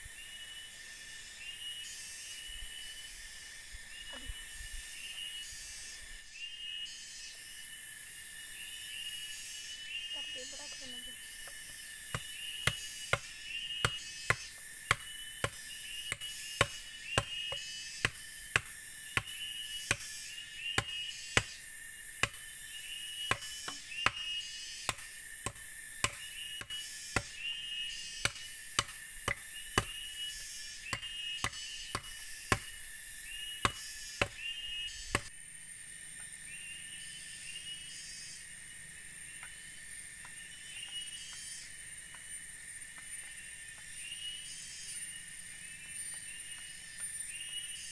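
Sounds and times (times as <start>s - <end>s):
tool chopping bamboo: 11.4s - 20.1s, 20.7s - 21.6s, 22.2s - 22.5s, 23.2s - 27.6s, 28.2s - 30.1s, 30.9s - 32.8s, 33.6s - 35.3s.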